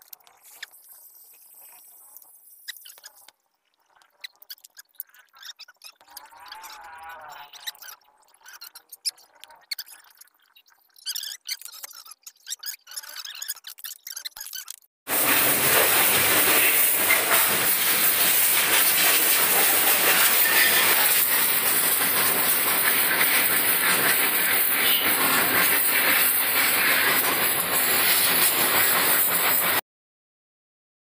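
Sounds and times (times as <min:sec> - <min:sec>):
pressure washer spraying water: 0:15.1 - 0:29.8.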